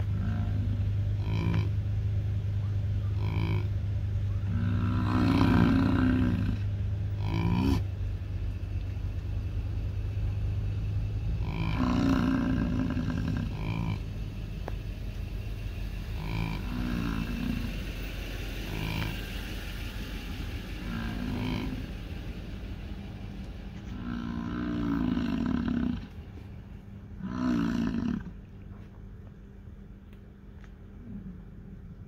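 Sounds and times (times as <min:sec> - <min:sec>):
bison grunting: 0:00.0 - 0:01.8, 0:03.0 - 0:07.9, 0:11.3 - 0:14.2, 0:16.0 - 0:17.8, 0:18.6 - 0:19.3, 0:20.8 - 0:21.9, 0:23.8 - 0:26.2, 0:27.2 - 0:28.4.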